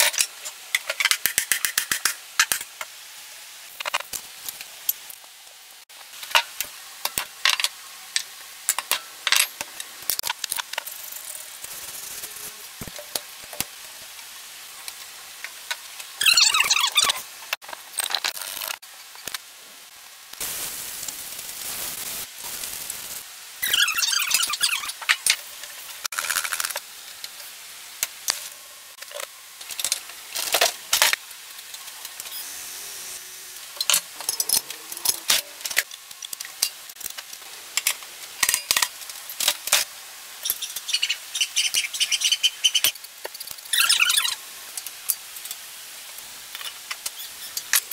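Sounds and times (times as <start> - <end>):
hissing noise: 20.3 - 29.0.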